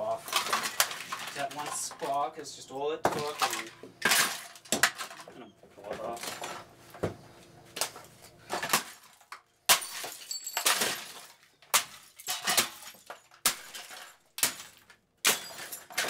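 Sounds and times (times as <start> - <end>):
plastic shards clattering: 0.1 - 2.3, 3.1 - 5.3, 7.8 - 16.0.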